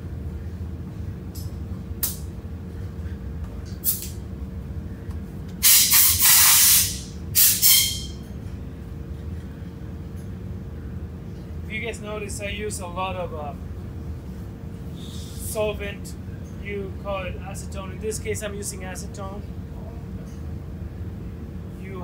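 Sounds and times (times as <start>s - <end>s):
spray bottle hissing: 5.6s - 8.1s.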